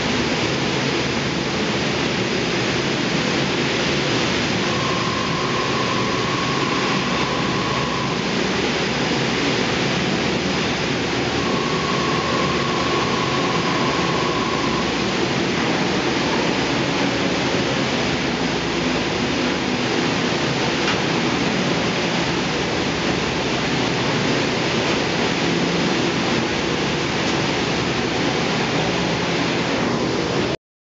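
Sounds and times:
thermal lance hissing roar: 0.0 - 30.6
steady high tone: 3.9 - 20.6.

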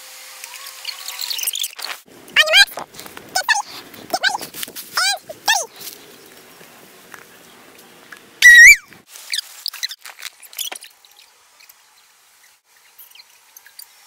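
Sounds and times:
loud high-pitched squeak: 8.4 - 8.8.

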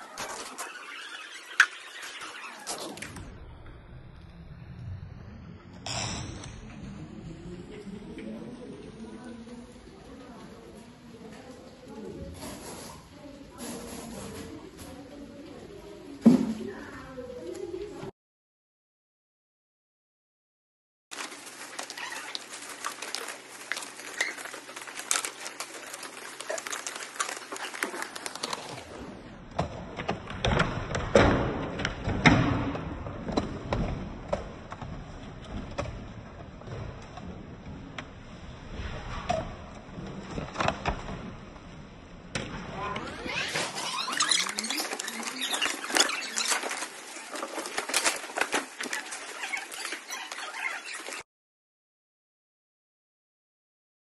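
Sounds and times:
plastic bags rustling: 21.1 - 29.0, 43.1 - 51.2.

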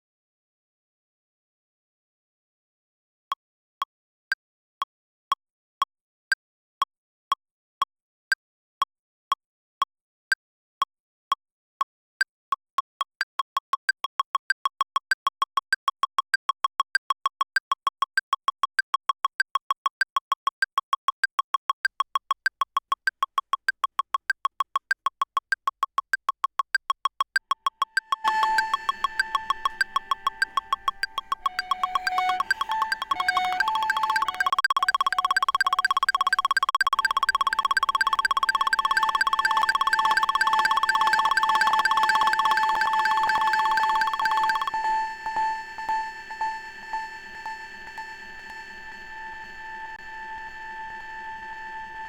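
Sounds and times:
metronome ticking: 13.5 - 48.0
second click pattern: 26.4 - 44.8
higher-pitched accent click: 27.6 - 44.9.

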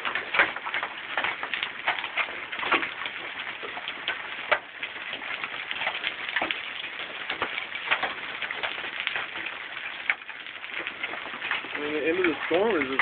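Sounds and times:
hailstones striking hard surfaces: 0.0 - 13.0
heavy rain hissing: 11.7 - 13.0.

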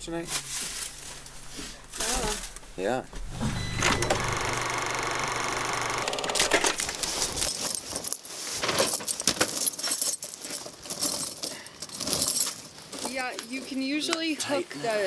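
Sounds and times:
steel chains clinking: 6.8 - 14.4.

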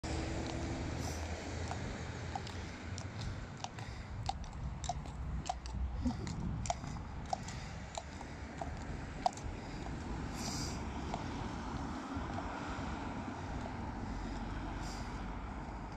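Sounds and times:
hooves clip-clopping on tarmac: 0.1 - 15.9
wind rumble on microphone: 0.1 - 15.9.

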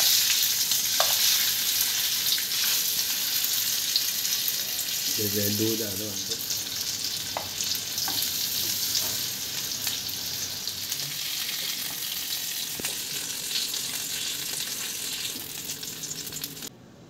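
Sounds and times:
wooden spatula working fish: 0.0 - 4.0
fish sizzling in hot oil: 0.0 - 16.7.

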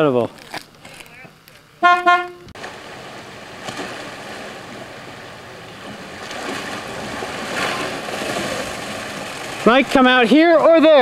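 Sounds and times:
water sloshing and splashing: 2.5 - 11.0.

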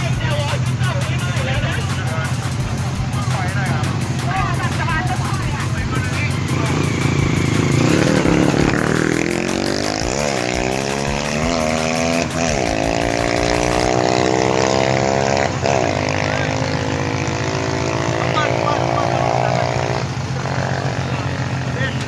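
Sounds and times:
vehicle engine accelerating: 0.0 - 22.0.

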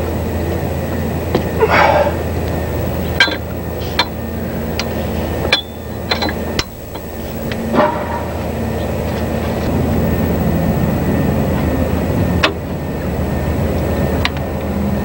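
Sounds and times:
steady low hum: 0.0 - 15.0
metal tools clinking: 3.0 - 4.2, 4.8 - 8.4.

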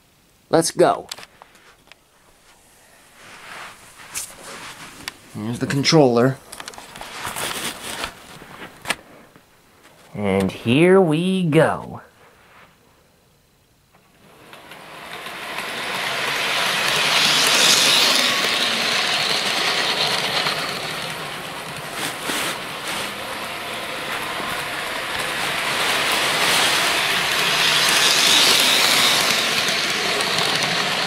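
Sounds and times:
wheels rattling on rails: 14.1 - 31.0
model train motor whirring: 14.2 - 31.0.

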